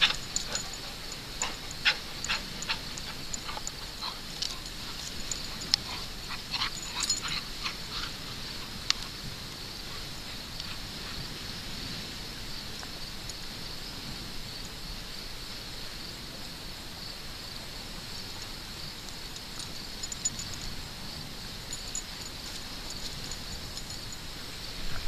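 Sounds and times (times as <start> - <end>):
faint ticks: 0.0 - 9.2
insects chorus: 0.0 - 25.0.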